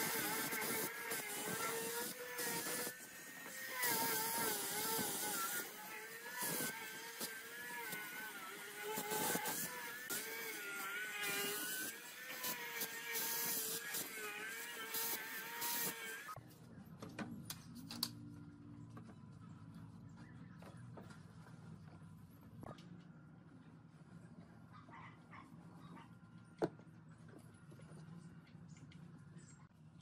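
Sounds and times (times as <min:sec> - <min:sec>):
abrasive disc hissing on wood: 0:00.0 - 0:16.4
angle grinder motor whine: 0:00.0 - 0:16.4.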